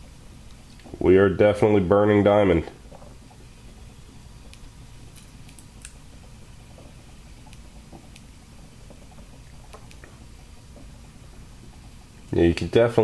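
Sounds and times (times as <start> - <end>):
torch flame hissing: 0.0 - 13.0
faint ticks: 2.9 - 12.4.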